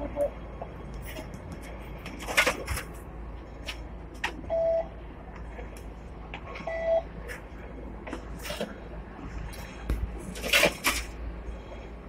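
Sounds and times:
steady low hum: 0:00.0 - 0:12.0
short fare reader beeps: 0:04.5 - 0:04.9, 0:06.6 - 0:07.1.

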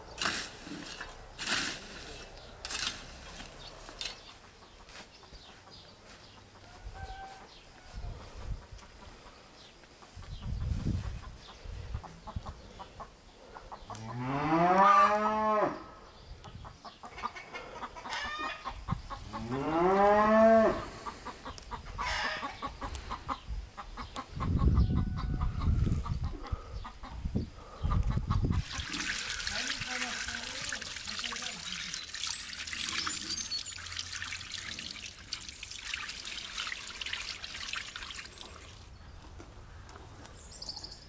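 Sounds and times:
cow mooing: 0:14.1 - 0:15.8, 0:19.4 - 0:20.9.

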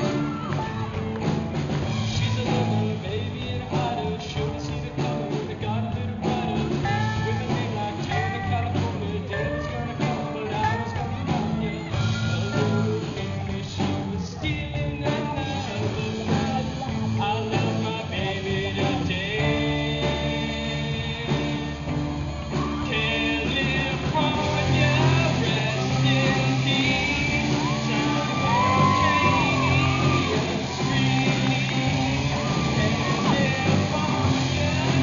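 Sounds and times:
bass guitar: 0:00.0 - 0:35.0
distorted electric guitars: 0:00.0 - 0:35.0
drum kit: 0:00.0 - 0:35.0
man singing: 0:01.9 - 0:35.0.

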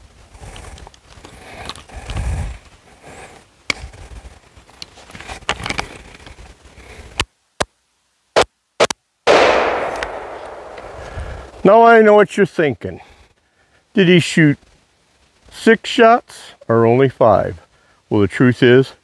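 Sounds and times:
rifle handling scraping and clicks: 0:04.8 - 0:06.4
gunshots: 0:08.8 - 0:11.7.

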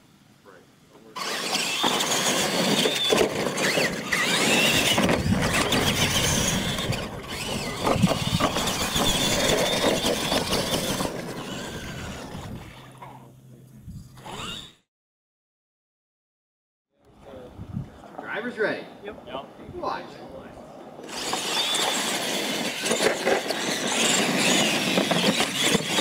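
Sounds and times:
toy truck motors whining: 0:01.1 - 0:13.1, 0:14.1 - 0:14.9, 0:21.0 - 0:26.0.

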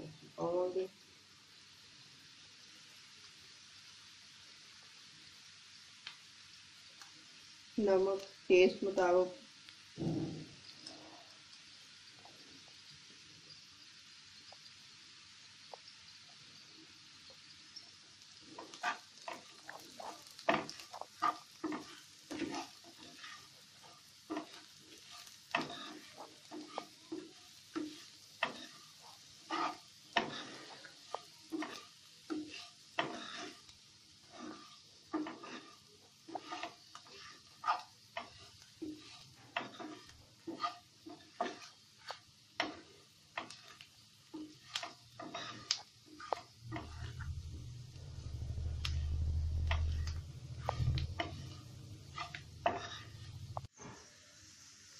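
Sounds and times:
onions sizzling in oil: 0:00.0 - 0:54.9
spatula scraping a pan: 0:17.8 - 0:54.1.

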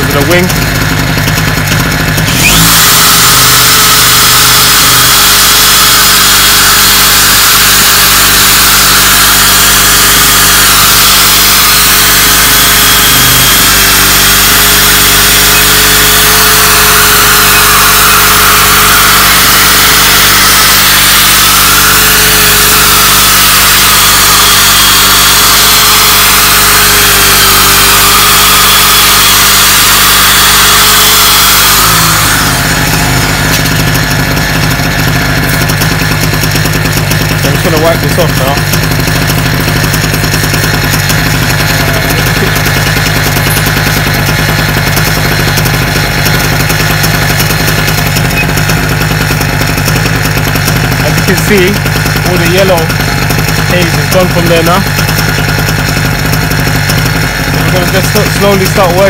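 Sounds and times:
electric drill sanding whine: 0:00.0 - 0:59.0
generator engine hum: 0:00.0 - 0:59.0.

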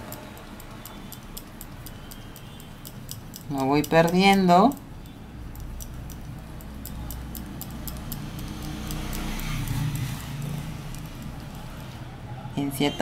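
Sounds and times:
paintbrush ticking on relief: 0:00.0 - 0:12.0.

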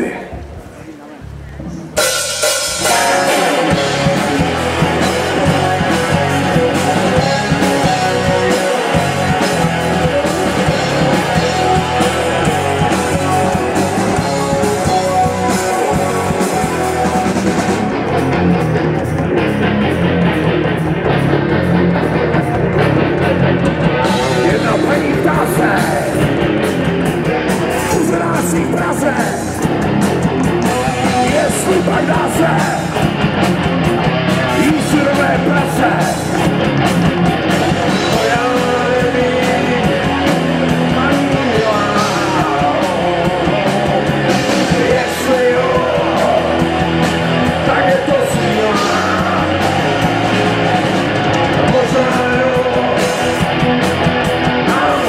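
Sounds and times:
distorted electric guitars: 0:00.0 - 0:55.0
drum kit: 0:01.3 - 0:55.0
cymbals: 0:01.8 - 0:06.4.

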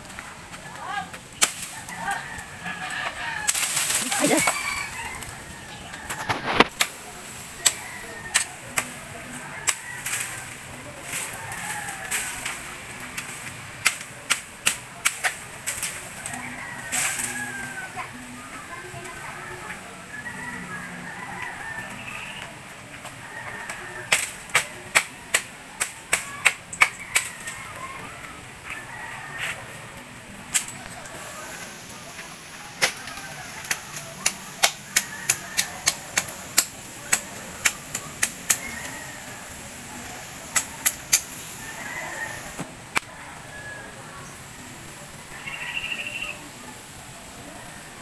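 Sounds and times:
machete chopping bamboo: 0:33.6 - 0:38.6.

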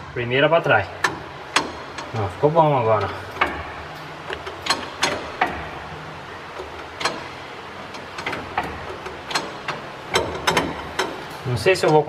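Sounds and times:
gear lever metallic clicks and knocks: 0:01.0 - 0:02.3, 0:03.0 - 0:05.7, 0:06.6 - 0:12.0.

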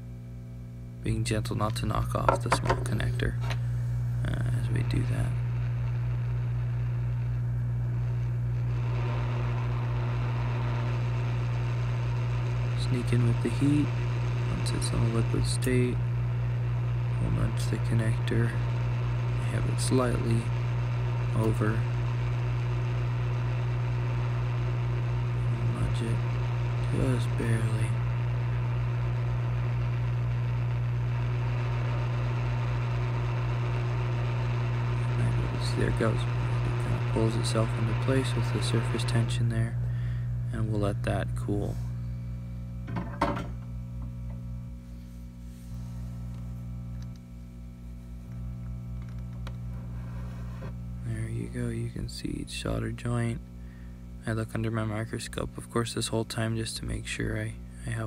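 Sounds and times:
low electrical hum: 0:00.0 - 0:58.0
hot air station blowing: 0:01.2 - 0:42.4.

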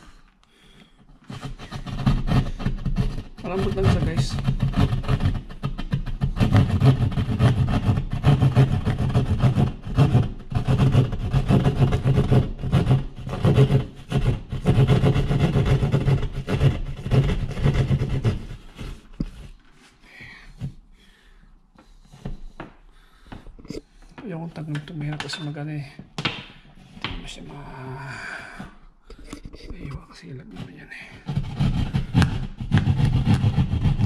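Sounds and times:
hand saw sawing through drywall: 0:01.2 - 0:23.3, 0:30.2 - 0:34.0
light clicks and scrapes: 0:29.1 - 0:32.3.

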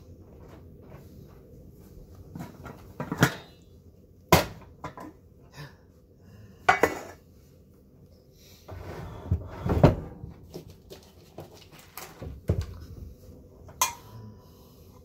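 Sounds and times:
metal pot and lid clanking: 0:13.8 - 0:14.1.

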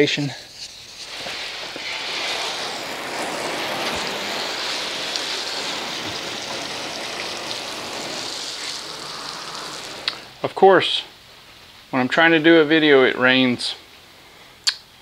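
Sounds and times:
hose spray hissing on car: 0:00.7 - 0:10.4.

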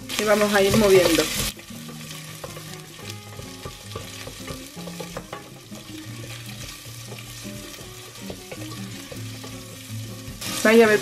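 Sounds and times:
onion sizzling in oil: 0:00.0 - 0:11.0
wooden spoon clicking on pot: 0:01.9 - 0:09.6.

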